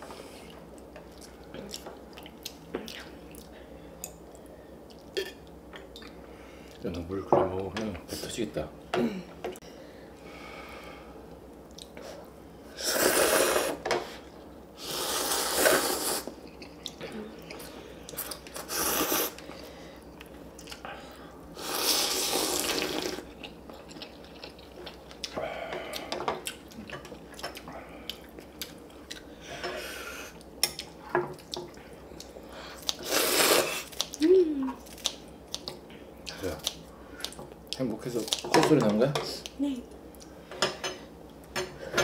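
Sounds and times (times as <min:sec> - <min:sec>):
noodles being slurped: 0:14.8 - 0:16.3, 0:32.9 - 0:34.1.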